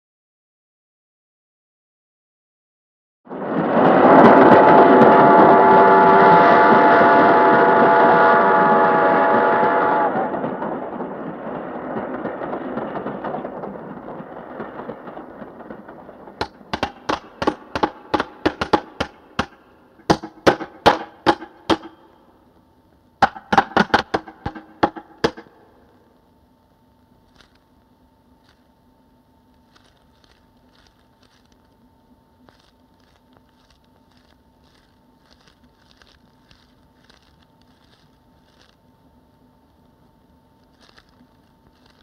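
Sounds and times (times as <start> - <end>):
train rushing past: 3.3 - 22.4, 23.2 - 25.9
train whistle: 3.8 - 10.8, 17.4 - 22.3
faint steady hum: 4.2 - 42.0.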